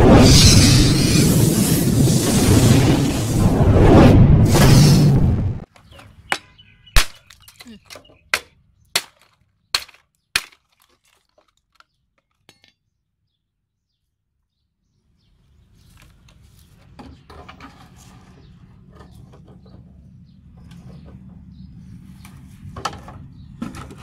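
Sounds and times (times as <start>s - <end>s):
machete hitting plastic fan blades: 6.3s - 10.7s.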